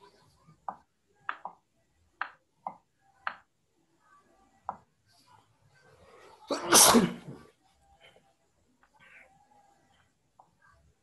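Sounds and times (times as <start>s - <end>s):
person sneezing: 6.5s - 7.4s.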